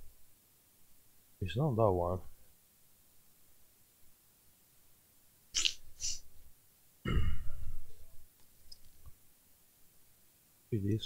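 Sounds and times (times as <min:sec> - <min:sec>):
man sniffing: 0:05.6 - 0:06.2
man coughing: 0:07.1 - 0:07.6.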